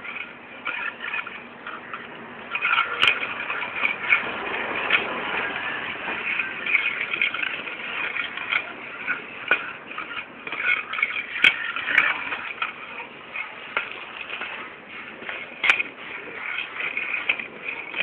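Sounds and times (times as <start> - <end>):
toy racket scraping on stone: 0.0 - 18.0.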